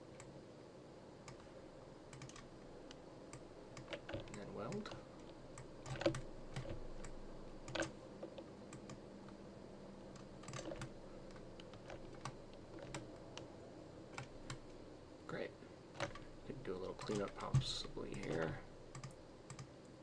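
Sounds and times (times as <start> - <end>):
faint steady hum: 0.0 - 20.0
keyboard and mouse clicks: 1.2 - 1.5, 2.1 - 9.4, 10.1 - 13.5, 14.1 - 14.8, 16.0 - 20.0.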